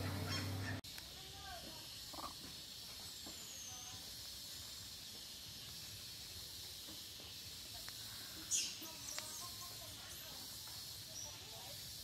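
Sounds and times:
steady high hiss: 0.0 - 12.0.

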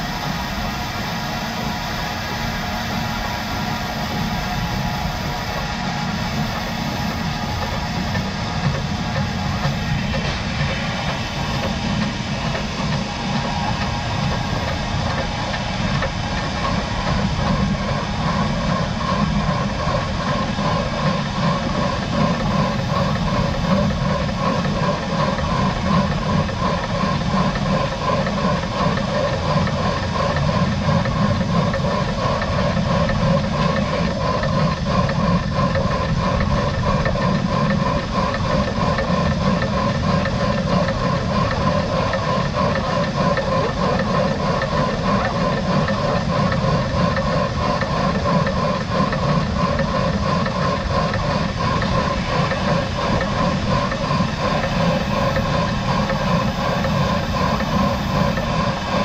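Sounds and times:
steam hiss: 0.0 - 19.6
steam locomotive pulsing: 0.0 - 59.0
train rolling over rails: 0.0 - 59.0.

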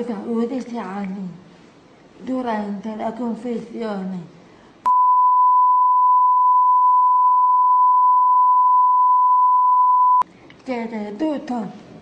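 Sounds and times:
censor bleep tone: 4.9 - 10.2.

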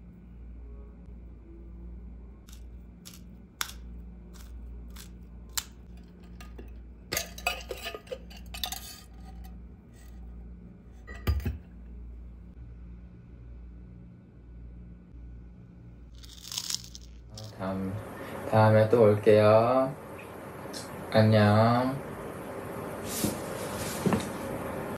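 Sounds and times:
metal tumbler clinking: 5.9 - 9.5.

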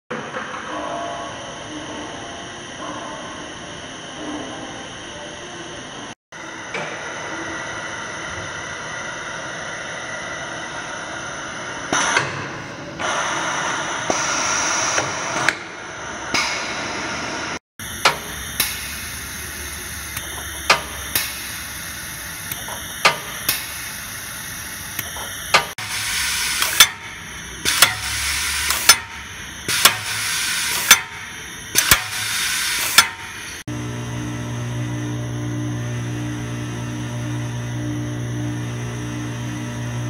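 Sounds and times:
pneumatic cylinders clacking: 11.9 - 16.9, 17.8 - 33.7
air hissing: 16.4 - 33.7.

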